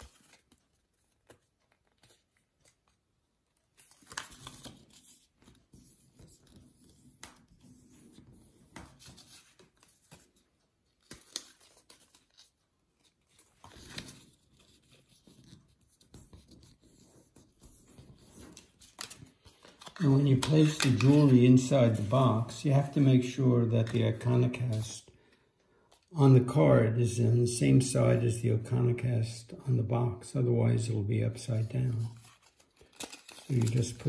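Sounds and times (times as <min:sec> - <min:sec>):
card box rustling and creasing: 0:11.2 - 0:23.1, 0:31.7 - 0:34.0.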